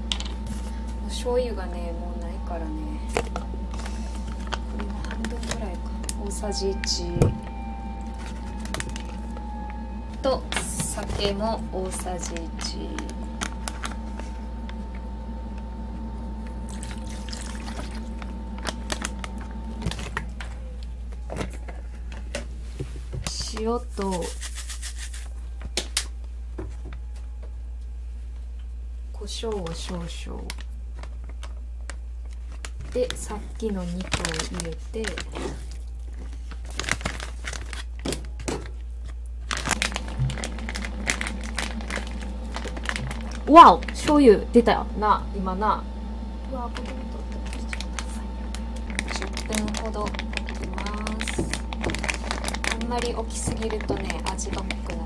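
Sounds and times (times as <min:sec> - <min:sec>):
steady background hum: 0:00.0 - 0:55.0
liquid squishing in plastic bag: 0:03.0 - 0:14.9, 0:16.5 - 0:22.4, 0:29.4 - 0:44.2, 0:46.7 - 0:55.0
plastic rustling: 0:03.0 - 0:14.9, 0:16.6 - 0:25.9, 0:29.3 - 0:44.2, 0:46.6 - 0:55.0.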